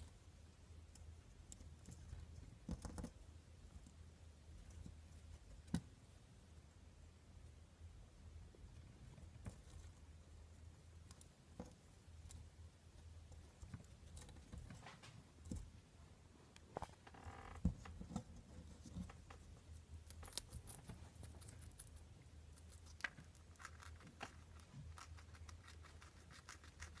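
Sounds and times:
low steady hum: 0.0 - 27.0
faint clicks and taps: 0.9 - 4.0.

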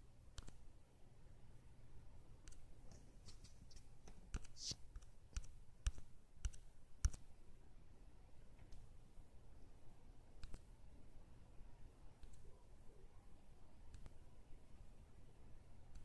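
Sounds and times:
faint clicks and taps: 0.3 - 0.6, 8.5 - 9.0, 10.4 - 10.7, 12.2 - 12.5, 13.9 - 14.2.

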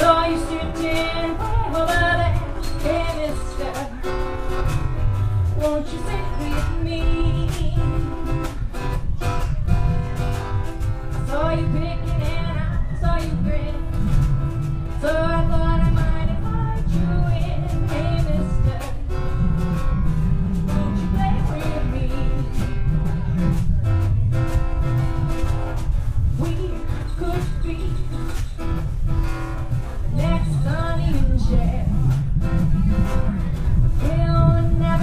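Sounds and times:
person singing: 0.0 - 4.5, 5.6 - 10.2, 15.0 - 19.4, 20.6 - 23.6, 30.1 - 35.0
plucked upright bass: 0.0 - 35.0
strummed acoustic guitar: 0.0 - 35.0.

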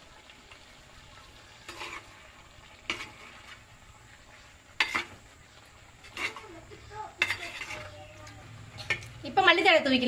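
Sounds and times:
gravy simmering with faint sizzle: 0.0 - 10.0
metal spoon stirring: 1.6 - 2.2, 2.8 - 3.6, 4.8 - 5.2, 6.0 - 9.3
spoon scraping pot: 1.6 - 2.2, 2.8 - 3.6, 4.8 - 5.3, 6.0 - 9.3.

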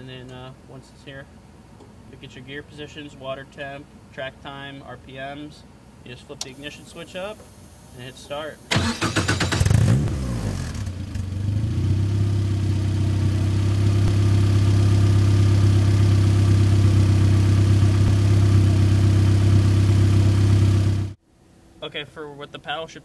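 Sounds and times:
race car engine idling: 10.8 - 21.1.

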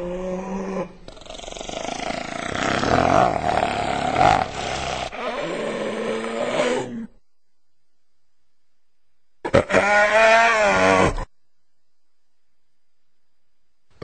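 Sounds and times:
raspy cartoon growling: 0.0 - 7.2.

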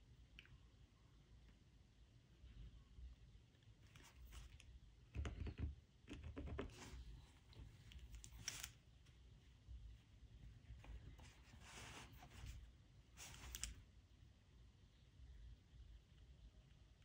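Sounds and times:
cloth being handled: 10.6 - 12.6.

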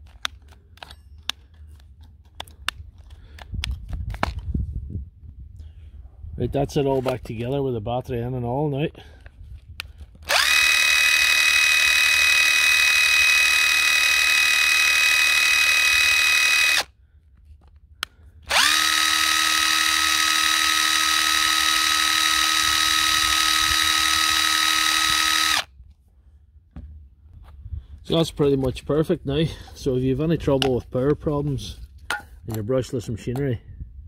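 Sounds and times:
impact wrench motor whine: 10.2 - 16.9, 18.4 - 25.7.

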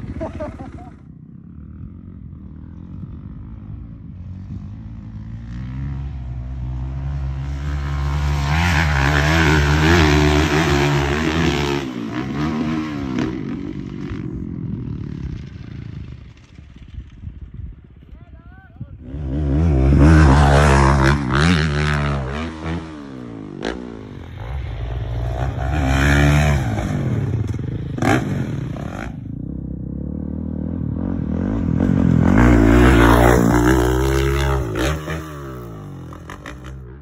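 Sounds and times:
dirt bike engines revving: 0.0 - 37.0.

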